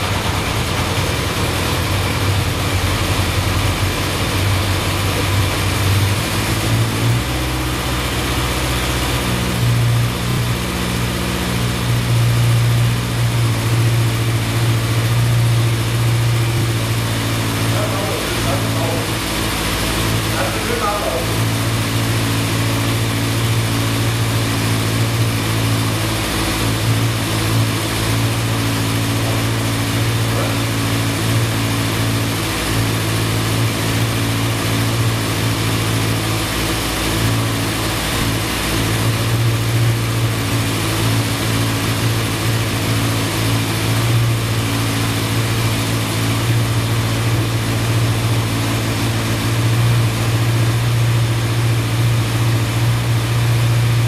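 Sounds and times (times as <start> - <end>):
motorcycle engine humming: 0.0 - 54.0.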